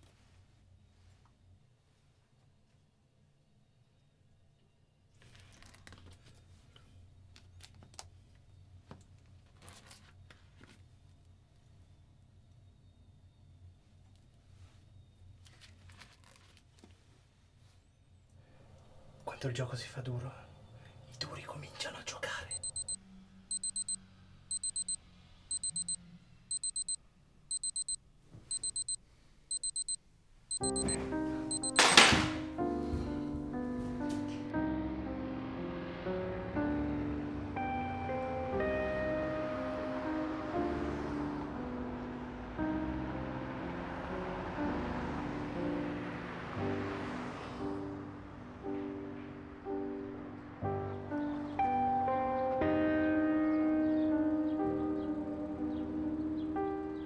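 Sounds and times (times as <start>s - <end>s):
plastic sleeve pages rustling: 5.2s - 6.4s, 9.4s - 10.8s, 15.4s - 16.9s
electronic alarm beeping: 22.5s - 32.1s
sharp clicks: 22.6s - 32.1s.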